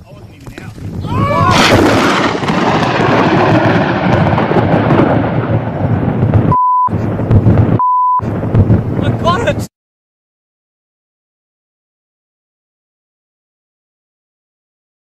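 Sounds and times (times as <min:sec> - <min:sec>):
thunder crack and rumble: 0:00.4 - 0:09.7
short high beeps: 0:06.6 - 0:06.9, 0:07.8 - 0:08.2.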